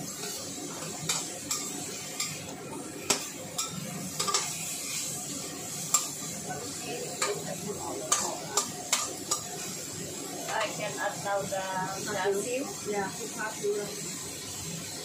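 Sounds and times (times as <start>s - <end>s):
metal spatula scraping wok: 0.0s - 11.3s
food sizzling: 0.0s - 15.0s.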